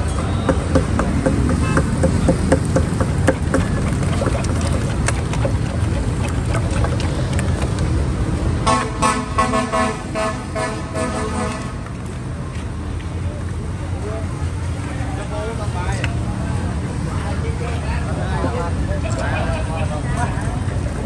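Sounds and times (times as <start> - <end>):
street traffic: 0.0 - 21.0
vehicle horn beeps: 1.6 - 1.9, 8.7 - 11.8.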